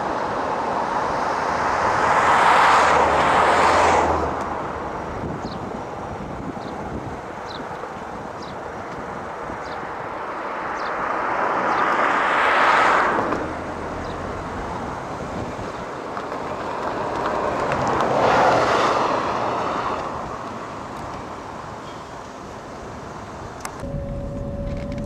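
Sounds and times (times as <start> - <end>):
car road and wind noise: 0.0 - 25.0
vehicles passing: 0.0 - 25.0.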